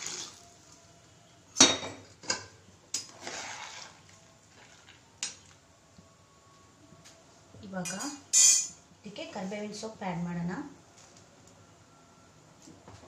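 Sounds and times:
water pouring into pot: 0:00.0 - 0:00.7, 0:03.0 - 0:05.6.

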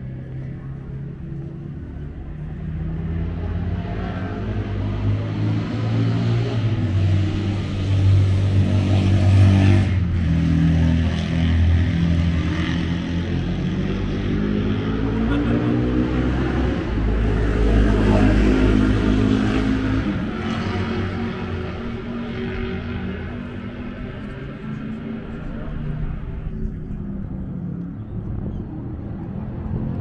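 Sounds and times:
motorcycle engines running: 0:00.0 - 0:30.0
motorcycle engine revving: 0:02.7 - 0:26.8.

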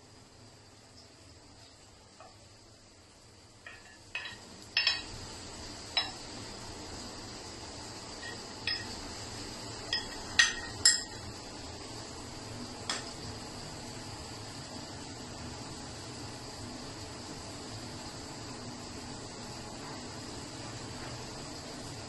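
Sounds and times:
spoon and pan clinking on bowl: 0:03.6 - 0:05.2, 0:06.0 - 0:06.2, 0:08.2 - 0:09.0, 0:09.9 - 0:11.3.

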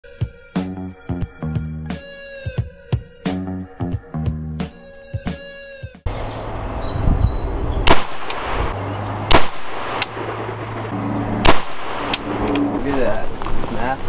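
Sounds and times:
rifle shots with echo: 0:07.8 - 0:08.6, 0:09.3 - 0:12.5.

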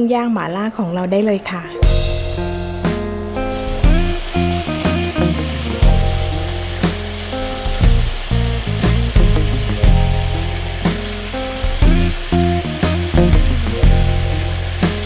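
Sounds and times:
background music with slow beat: 0:01.7 - 0:15.0
skewers sizzling on grill pan: 0:03.3 - 0:15.0.

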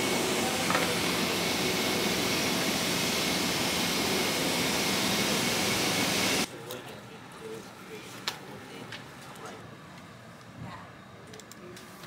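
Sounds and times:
subway train rushing along track: 0:00.0 - 0:06.5.

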